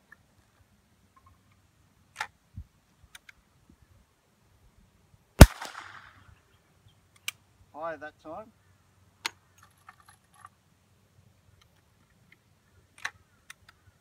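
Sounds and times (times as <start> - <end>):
rifle shot with echo: 5.4 - 6.2
rifle handling clicks and knock: 13.0 - 13.8.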